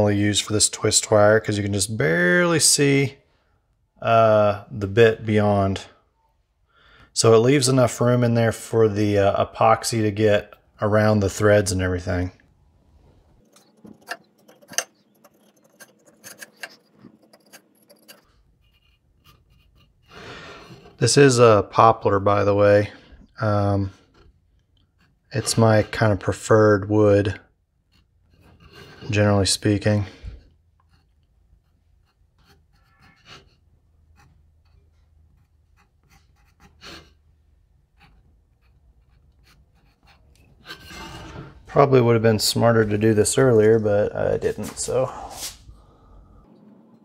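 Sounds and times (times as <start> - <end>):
pencil scratching on wood: 13.4 - 21.0, 24.0 - 26.2, 27.8 - 29.1, 30.8 - 37.2, 37.8 - 41.4.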